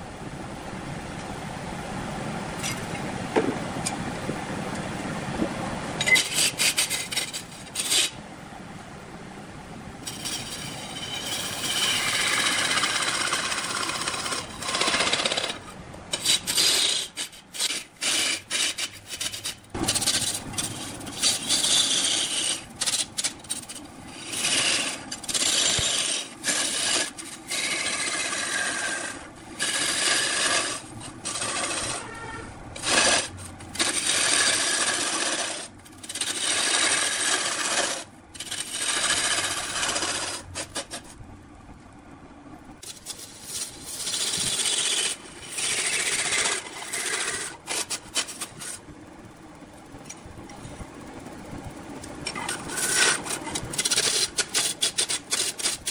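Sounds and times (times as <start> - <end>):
lathe tool scraping spinning log: 6.0 - 8.2, 10.0 - 41.2, 42.8 - 48.9, 52.0 - 55.9.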